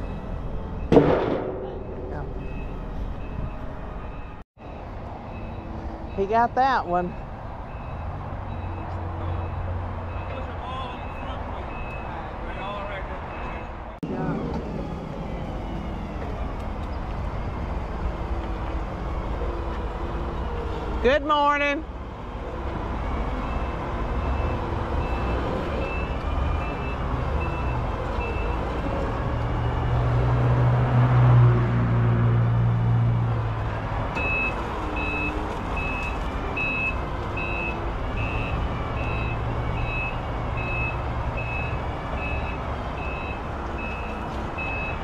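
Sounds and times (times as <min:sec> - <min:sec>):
forklift engine humming: 0:00.0 - 0:12.0, 0:14.0 - 0:45.0
reversing alarm beeping: 0:01.6 - 0:12.2, 0:23.0 - 0:28.8, 0:34.2 - 0:45.0.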